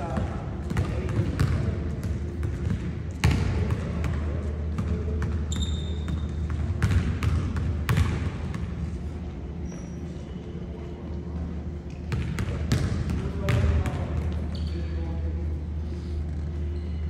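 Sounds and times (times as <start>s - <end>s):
basketballs bouncing on wood floor: 0.0s - 8.8s, 12.1s - 14.4s
shoe squeak: 5.5s - 6.4s, 9.6s - 10.5s, 14.5s - 15.0s.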